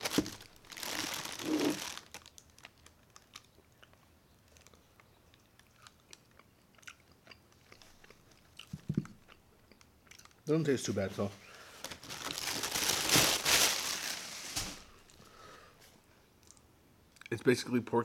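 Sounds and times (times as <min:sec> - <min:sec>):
crunching crispy pork skin: 0:00.0 - 0:08.1.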